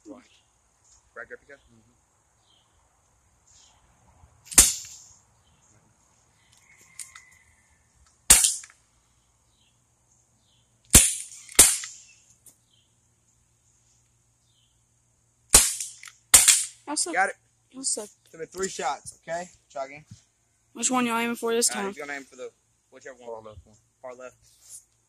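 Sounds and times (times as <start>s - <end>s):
bb pistol shots popping: 4.5s - 5.0s, 8.3s - 8.7s, 10.9s - 12.0s, 15.5s - 16.8s.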